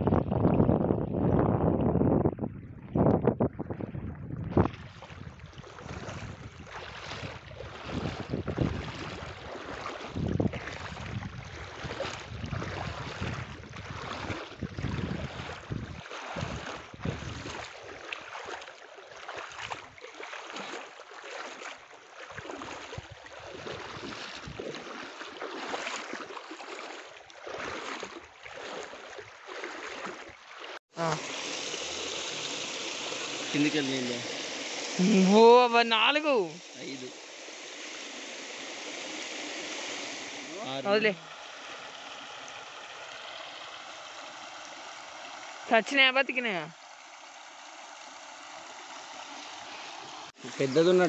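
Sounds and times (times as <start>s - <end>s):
wind buffeting microphone: 0.0s - 17.7s
river water rushing: 17.5s - 51.0s.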